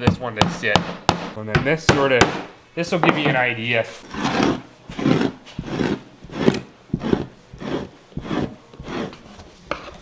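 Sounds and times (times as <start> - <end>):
tool scraping pelt on board: 4.0 - 10.0.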